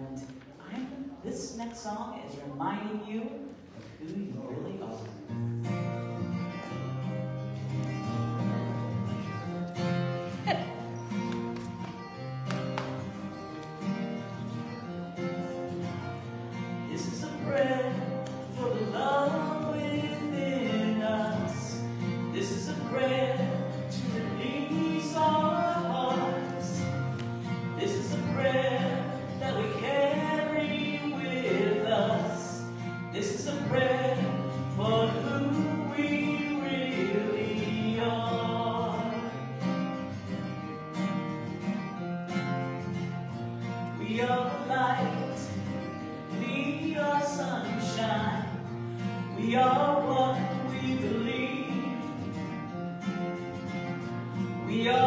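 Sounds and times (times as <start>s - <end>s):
acoustic guitar: 0.0s - 55.0s
woman singing: 27.8s - 32.6s.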